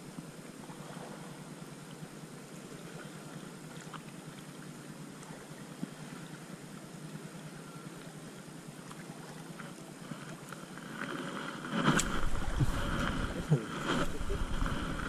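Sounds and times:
water lapping: 0.0s - 15.0s
wind rumble on microphone: 11.6s - 15.0s.

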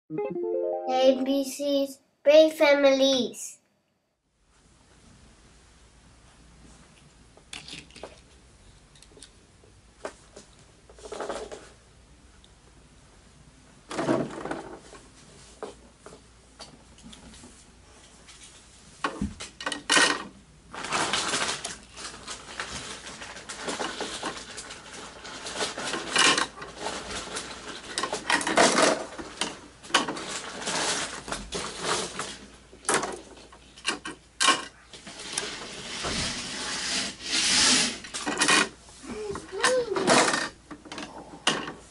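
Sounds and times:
toy cars clattering into plastic: 19.6s - 34.7s, 39.6s - 40.6s.

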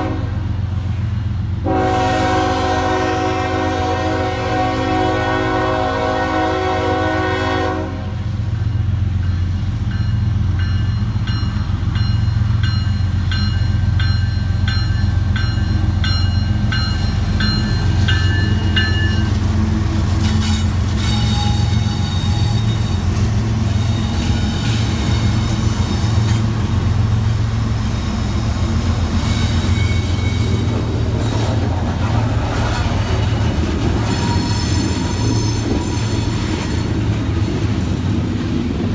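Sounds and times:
locomotive horn: 0.0s - 0.5s, 1.6s - 8.2s, 20.1s - 26.4s
crossing bell ringing: 8.7s - 19.5s
train wheels clattering and squealing: 8.7s - 38.5s.

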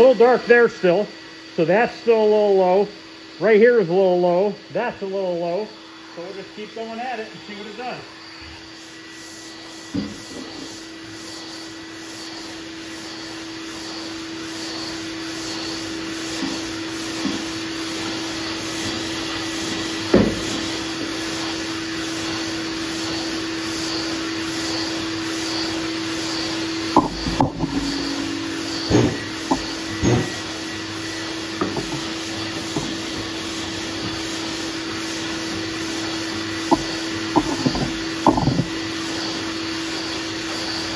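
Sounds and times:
shop vacuum humming and hissing: 0.0s - 40.9s
sharp knocks: 28.9s - 30.4s, 36.7s - 38.7s.

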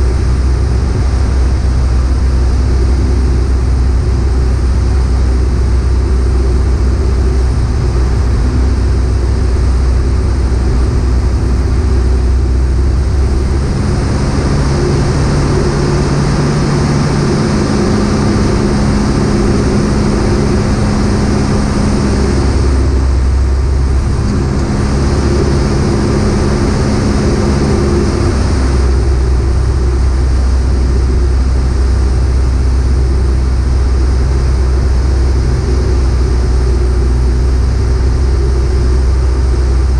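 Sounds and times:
propeller plane engine drone: 0.0s - 39.9s.

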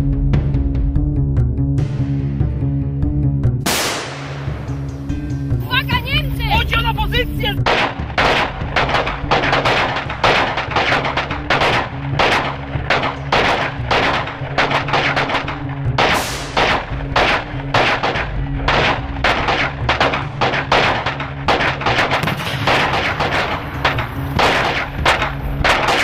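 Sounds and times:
rifle gunfire: 3.6s - 4.8s, 7.6s - 26.0s.

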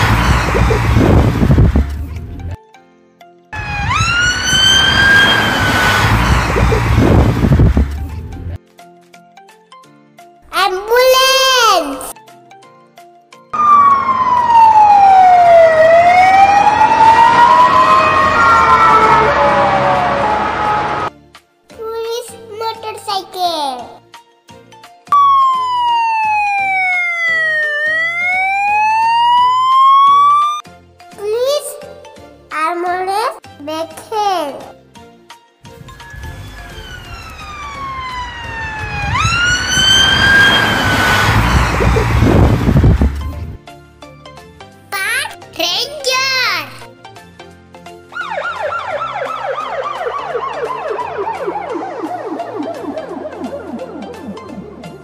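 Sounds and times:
ambulance siren wailing: 0.0s - 1.9s, 3.6s - 8.5s, 13.6s - 21.1s, 25.1s - 30.6s, 35.8s - 43.3s, 48.1s - 55.0s
low vehicle rumble: 0.0s - 2.6s, 3.6s - 8.6s, 35.8s - 43.6s
road noise: 0.0s - 2.6s, 3.6s - 8.6s, 13.6s - 21.1s, 35.7s - 43.6s.

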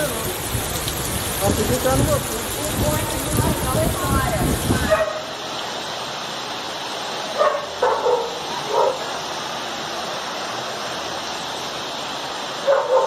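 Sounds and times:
floodwater rushing: 0.0s - 13.0s
dog barking: 4.8s - 5.3s, 7.4s - 9.1s, 12.6s - 13.0s.

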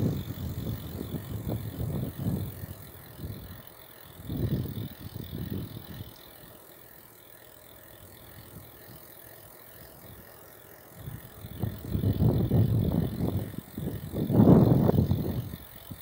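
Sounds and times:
wind rumble on microphone: 0.0s - 6.2s, 11.0s - 16.0s
bicycle freewheel ticking: 0.0s - 16.0s.

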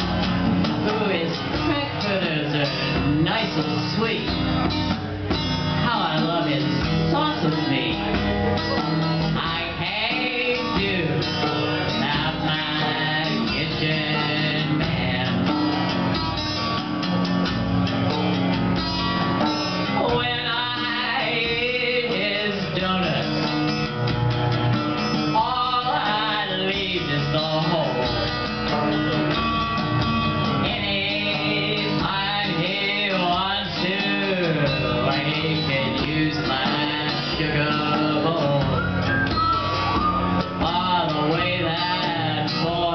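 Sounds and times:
acoustic guitar strumming: 0.0s - 42.9s
woman singing: 7.1s - 8.0s.

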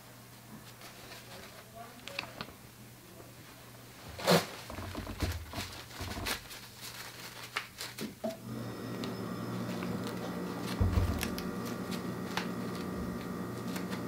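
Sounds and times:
film strip rustling and scraping: 0.6s - 2.5s, 5.3s - 8.2s, 9.7s - 14.0s
steady hum: 8.4s - 14.0s.

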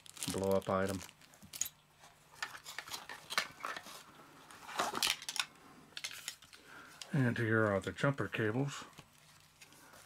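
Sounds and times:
plastic and metal parts clacking: 2.4s - 4.0s, 4.6s - 6.6s.

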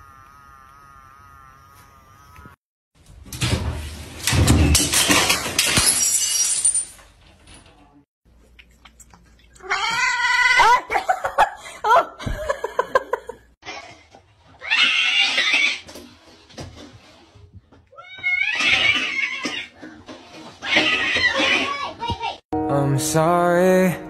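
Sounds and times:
things clattering onto hard floor: 3.3s - 7.9s.

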